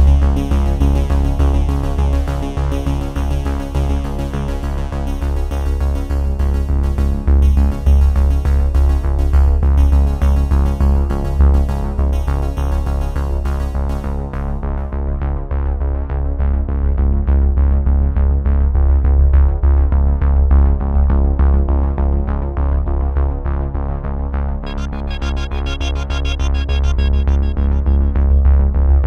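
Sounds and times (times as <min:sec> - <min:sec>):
electronic music with bass: 0:00.0 - 0:29.0.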